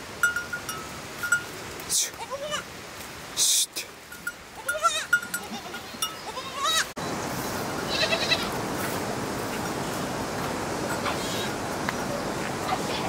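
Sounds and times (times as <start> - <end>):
steady hiss: 0.0 - 13.0
goats bleating: 4.6 - 6.9, 7.8 - 8.5.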